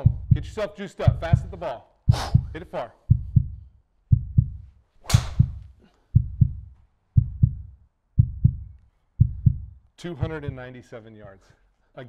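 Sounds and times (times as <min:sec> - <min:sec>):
heartbeat double thump: 0:00.0 - 0:10.7
golf club striking ball: 0:05.0 - 0:05.6.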